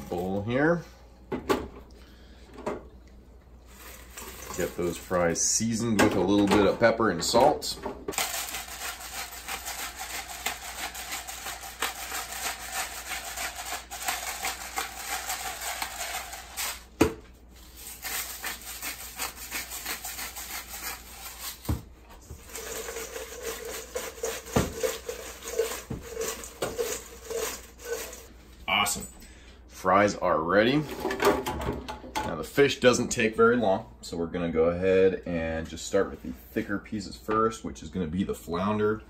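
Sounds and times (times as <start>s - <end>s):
fine crackle of fries: 3.6s - 5.0s, 8.2s - 16.9s, 22.4s - 24.3s
fries rattling in metal bowl: 3.7s - 6.4s, 8.1s - 16.9s, 17.7s - 21.7s, 22.3s - 28.4s.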